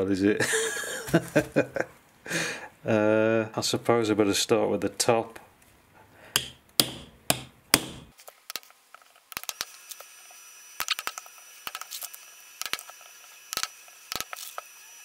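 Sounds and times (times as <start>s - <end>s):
hammer blows on metal tool: 6.4s - 8.1s.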